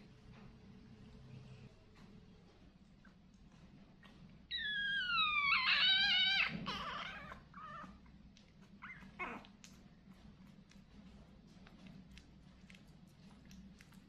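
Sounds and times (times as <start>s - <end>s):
puppy whining: 4.0s - 10.2s.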